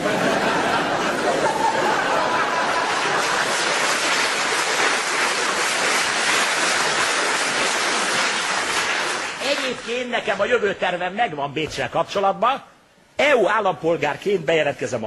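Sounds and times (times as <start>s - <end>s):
audience laughing: 0.0s - 4.5s
audience applauding: 1.0s - 10.1s.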